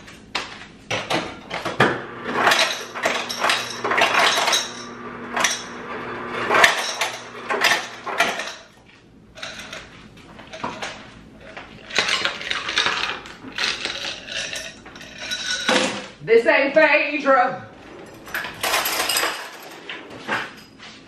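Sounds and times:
motor hum: 1.8s - 8.6s.

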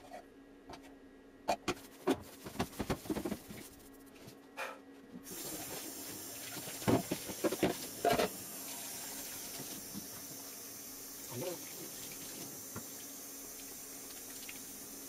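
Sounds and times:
items clattering in sink: 5.3s - 8.4s
water running into sink: 5.3s - 15.0s.

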